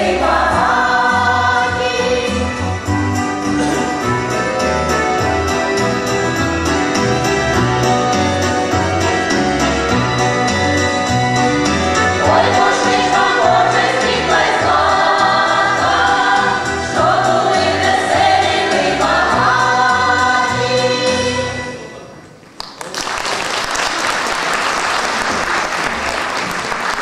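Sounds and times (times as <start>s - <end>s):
women's choir singing in harmony: 0.0s - 3.2s, 11.9s - 21.8s
audience applause: 22.6s - 27.0s.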